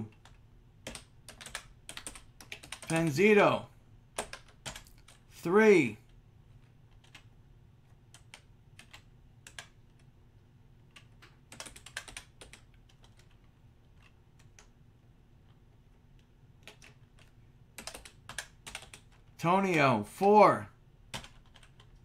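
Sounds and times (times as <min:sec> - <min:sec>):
computer keyboard typing: 0:00.1 - 0:03.1, 0:04.2 - 0:05.2, 0:06.6 - 0:07.3, 0:08.0 - 0:10.1, 0:10.8 - 0:14.8, 0:16.2 - 0:19.4, 0:21.1 - 0:22.0.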